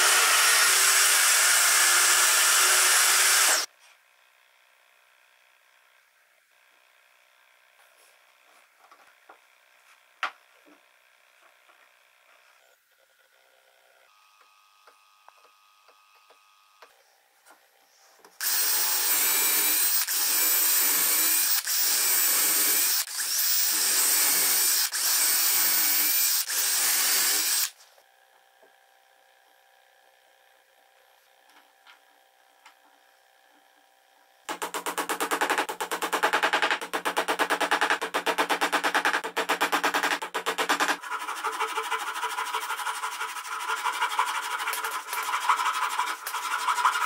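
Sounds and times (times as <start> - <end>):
power drill boring into wood: 0.0 - 3.7, 18.4 - 27.8.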